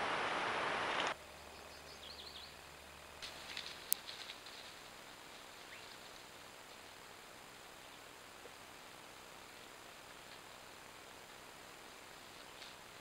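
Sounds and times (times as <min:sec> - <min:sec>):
bird chirps: 0:01.3 - 0:02.6, 0:05.6 - 0:06.0.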